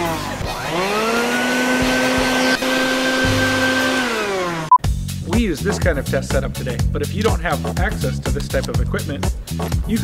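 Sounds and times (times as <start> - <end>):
shop vacuum motor whine: 0.0 - 4.8.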